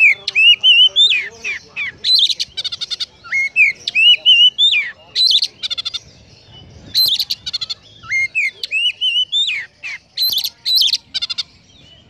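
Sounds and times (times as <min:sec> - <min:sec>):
songbird singing whistles and trills: 0:00.0 - 0:12.0.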